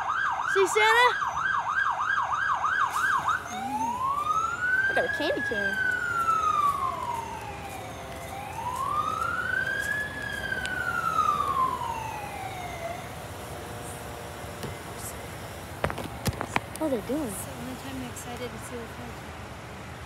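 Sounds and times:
fire truck siren wailing: 0.0s - 15.8s.

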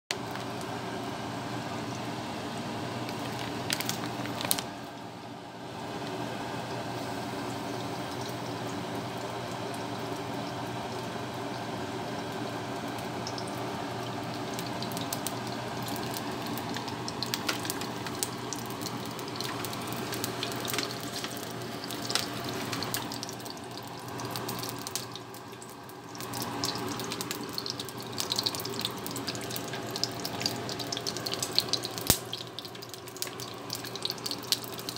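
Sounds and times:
oil crackling and popping: 0.1s - 0.8s, 3.0s - 5.1s, 12.9s - 34.9s.

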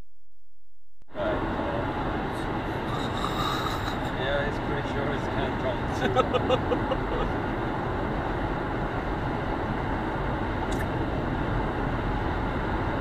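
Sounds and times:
car road and tyre noise: 1.1s - 13.0s.

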